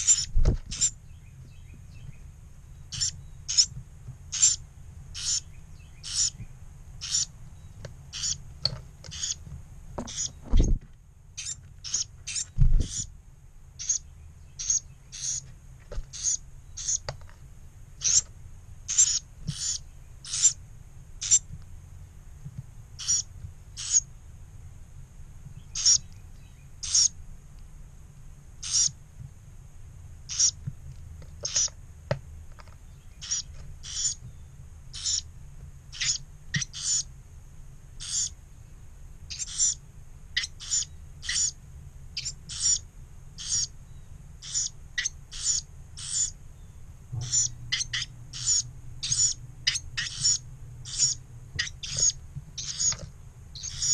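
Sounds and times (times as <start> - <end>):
bird fledglings begging calls: 0.0 - 13.2, 13.8 - 15.5, 16.1 - 17.3, 18.0 - 20.6, 21.2 - 21.5, 23.0 - 24.1, 25.5 - 27.2, 28.6 - 29.0, 30.2 - 30.6, 31.4 - 31.7, 32.9 - 35.3, 35.9 - 37.1, 38.0 - 38.4, 39.3 - 41.6, 42.2 - 53.9.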